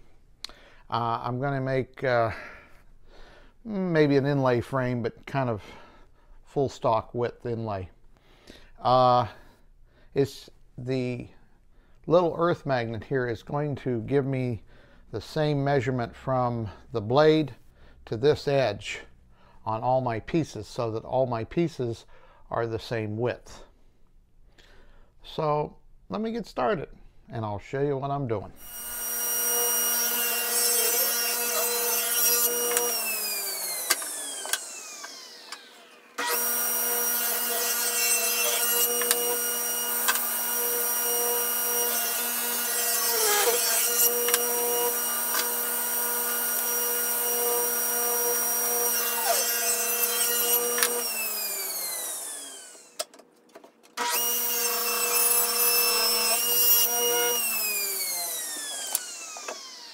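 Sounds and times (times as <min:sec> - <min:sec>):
saw cutting wood: 0:28.6 - 0:53.0, 0:54.0 - 0:59.9
saw spinning down: 0:28.6 - 0:53.0, 0:54.0 - 0:59.9
table saw whine: 0:28.6 - 0:53.0, 0:54.0 - 0:59.9.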